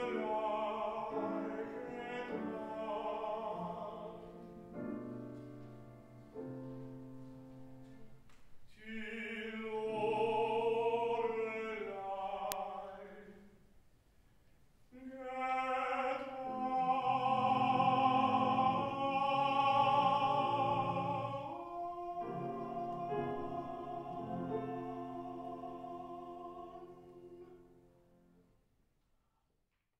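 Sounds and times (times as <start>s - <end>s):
baritone voice singing with vibrato: 0.0s - 4.5s, 8.7s - 13.5s, 14.9s - 27.6s
grand piano chords: 0.0s - 12.6s, 15.4s - 28.4s.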